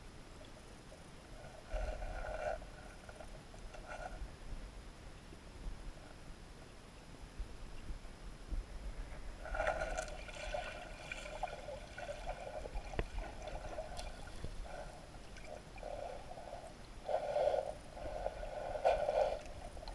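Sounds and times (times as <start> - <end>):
muffled underwater stream gurgling: 8.9 - 19.9.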